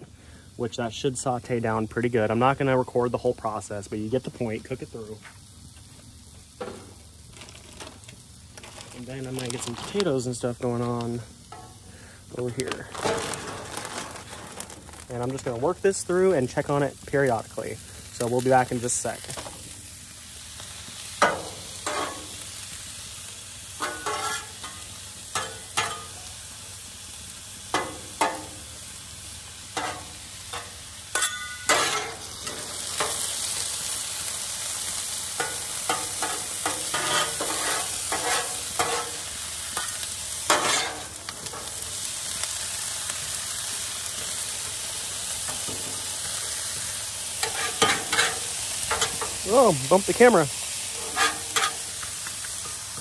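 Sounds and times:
frying sizzle: 0:00.0 - 0:53.0
metal spatulas scraping griddle: 0:21.2 - 0:22.3, 0:23.8 - 0:24.7, 0:29.8 - 0:33.2, 0:35.4 - 0:39.2, 0:39.8 - 0:41.7, 0:47.4 - 0:49.3, 0:50.9 - 0:51.9.

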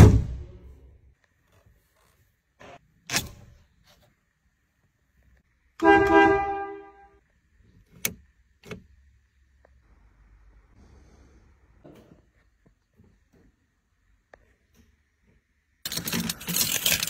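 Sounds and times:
car horn honk: 0:05.8 - 0:07.2.

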